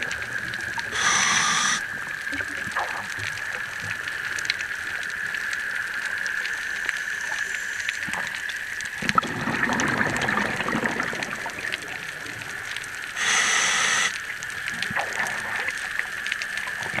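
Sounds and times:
crackling clicks: 0.0 - 10.3, 10.9 - 17.0
underwater high hum: 0.0 - 17.0
buzzing hiss: 0.8 - 2.0, 13.1 - 14.4
bubbles gushing: 8.0 - 17.0.

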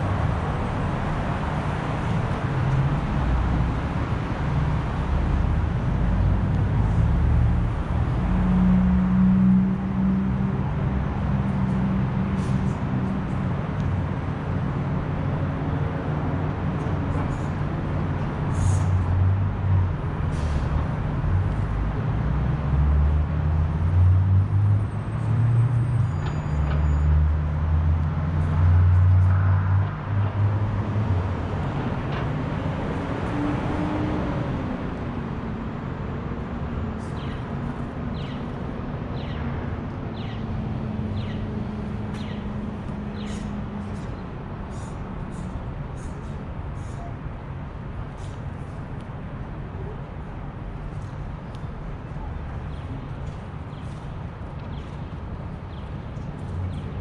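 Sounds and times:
road noise: 0.0 - 57.0
heavy vehicle engine running: 20.0 - 22.0.

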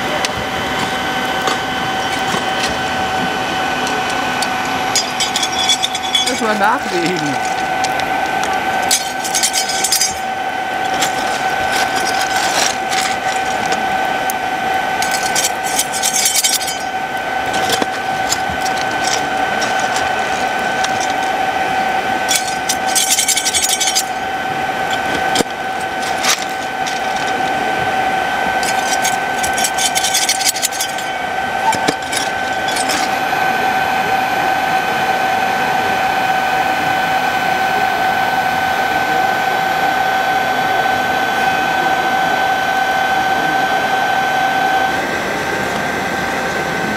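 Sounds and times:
electric blower fan whine: 0.0 - 46.9
poker scraping and rattling: 3.8 - 13.8, 15.0 - 21.4, 22.3 - 24.2, 24.9 - 27.6, 28.6 - 33.2.

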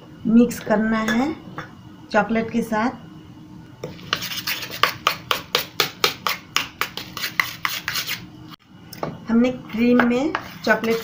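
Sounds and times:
spoon scraping steel bowl: 3.9 - 5.1, 10.3 - 11.0.

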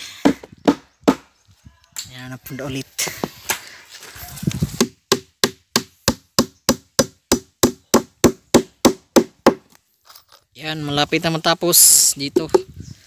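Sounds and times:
hammer striking wood: 0.2 - 1.3, 4.8 - 9.7.

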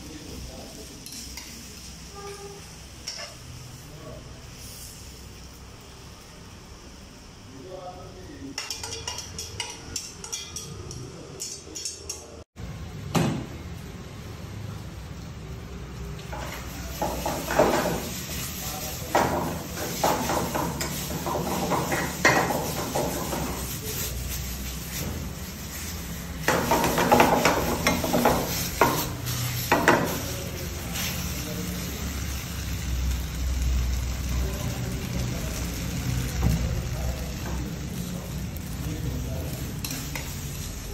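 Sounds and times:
pasta sizzling in frying pan: 0.0 - 7.5, 15.8 - 40.9
metal tongs clinking on plate: 8.6 - 12.3
pan clanking on stove: 26.4 - 29.1.

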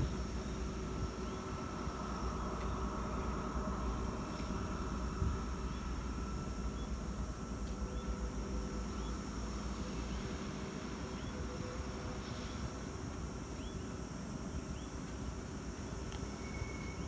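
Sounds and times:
distant freight train rumble: 0.0 - 17.0.

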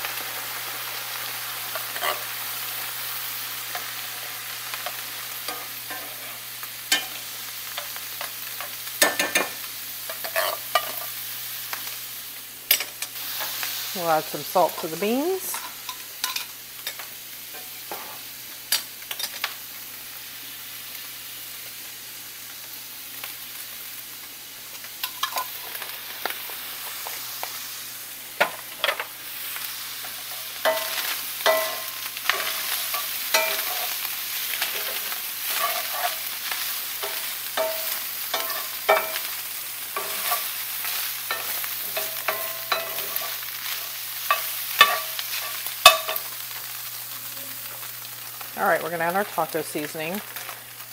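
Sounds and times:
meat and onions sizzling: 0.0 - 50.9
metal spoon scraping pan: 1.8 - 2.3, 10.1 - 11.1, 30.0 - 34.0, 34.6 - 36.3, 37.0 - 39.3, 40.0 - 46.3.

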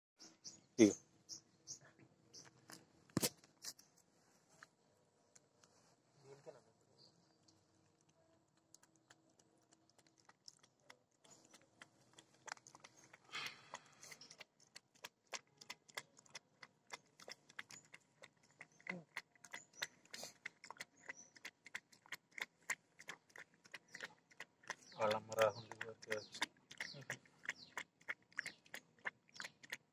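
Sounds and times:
puppy lapping milk: 7.9 - 29.9.

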